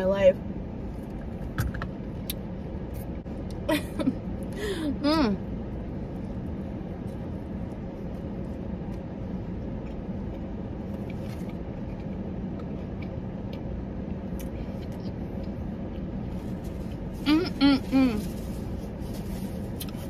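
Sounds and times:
car cabin hum: 0.0s - 20.0s.

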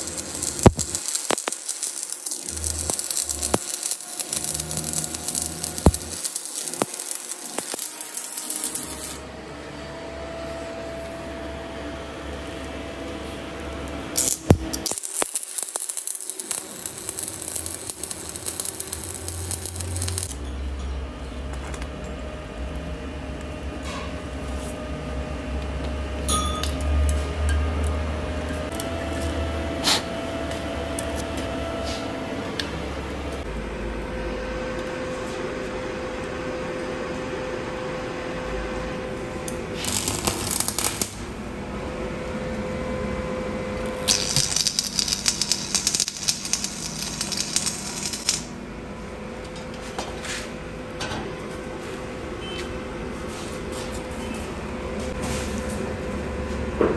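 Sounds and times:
welding arc crackle: 0.0s - 9.2s, 14.1s - 20.4s, 39.7s - 41.4s, 43.8s - 48.6s
arc welding machine humming: 0.0s - 23.7s, 24.3s - 49.8s.

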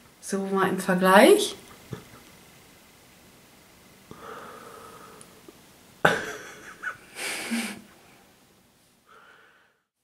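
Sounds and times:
woman breathing: 4.1s - 5.4s, 9.0s - 9.9s.

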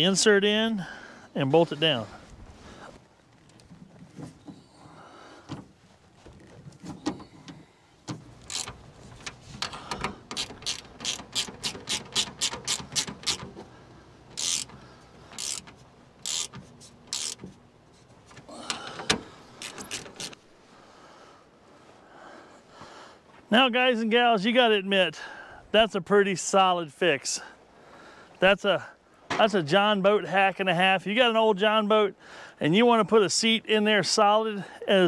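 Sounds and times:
ratcheting wrench clicking: 8.4s - 13.5s, 14.4s - 17.6s.

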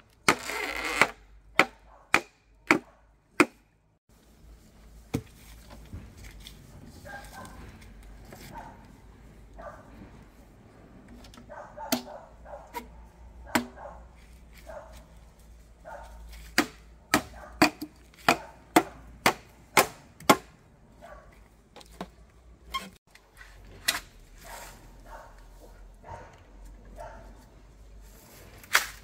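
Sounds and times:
sharp chopping strikes: 1.6s - 3.6s.

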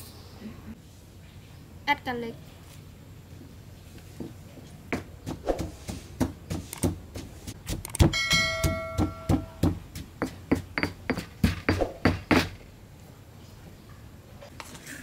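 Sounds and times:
stone pestle pounding in mortar: 5.0s - 12.6s.

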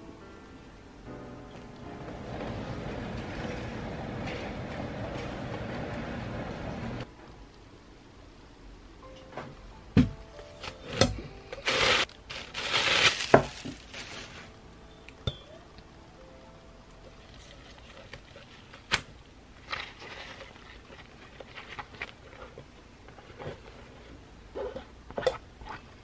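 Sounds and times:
soft background music: 0.0s - 7.5s, 8.9s - 18.6s
cloth rustling: 11.6s - 14.6s
plastic bag crinkling: 11.6s - 14.6s, 19.6s - 24.2s.

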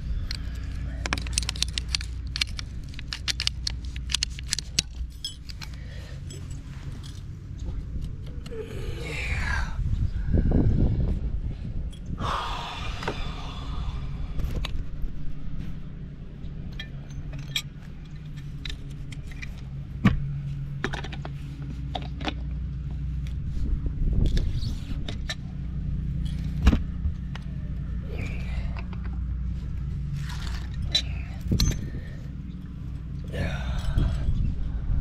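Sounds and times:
steady low hum: 0.0s - 35.0s
tools and fittings clinking: 0.2s - 7.3s, 16.6s - 19.6s, 30.1s - 34.4s.

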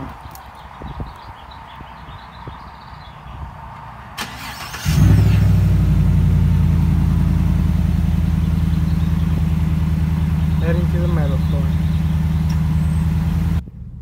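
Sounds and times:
engine starter click: 4.2s - 5.4s
truck engine starting and idling: 4.2s - 14.0s.

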